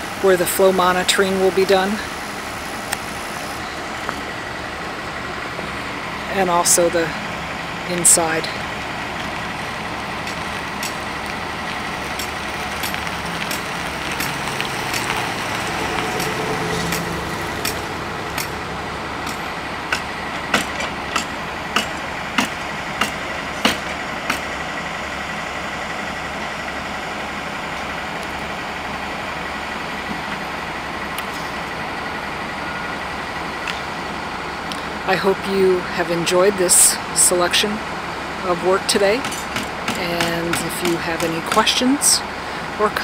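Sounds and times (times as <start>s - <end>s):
machinery engine noise: 0.0s - 43.0s.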